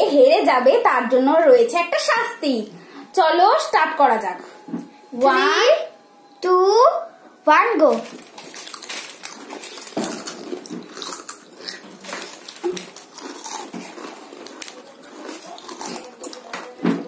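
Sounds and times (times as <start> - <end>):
people chewing potato chips: 7.8 - 17.0.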